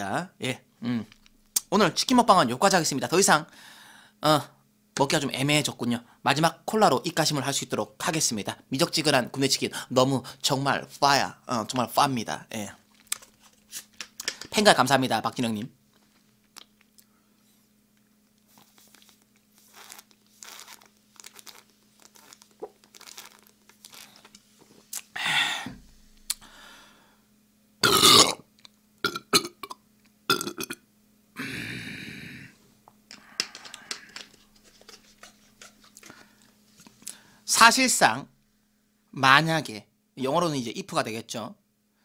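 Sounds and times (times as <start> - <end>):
man gulping drink: 21.6 - 24.3, 27.8 - 28.4, 29.0 - 30.8
man burping loudly: 27.8 - 28.4, 29.0 - 30.8.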